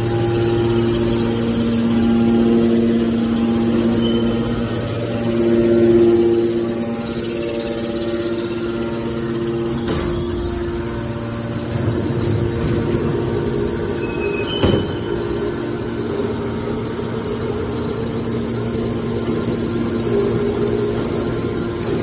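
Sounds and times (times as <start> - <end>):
hydraulic pump motor humming: 0.0 - 22.0
metallic clank: 12.1 - 15.2.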